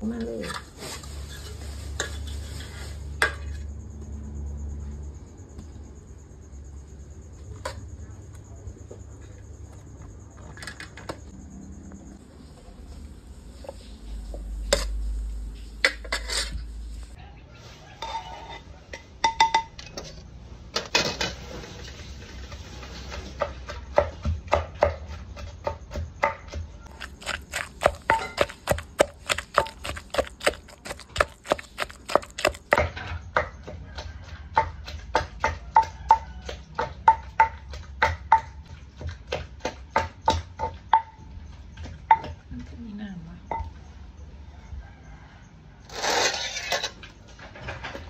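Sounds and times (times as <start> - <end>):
pestle pounding in clay mortar: 23.2 - 42.8.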